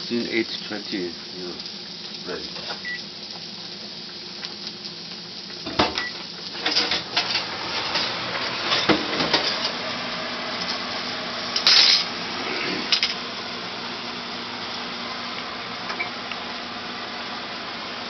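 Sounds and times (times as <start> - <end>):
microwave keypad beep: 2.8 - 3.0, 6.0 - 6.2, 15.9 - 16.2
pots and pans clattering: 5.6 - 9.8.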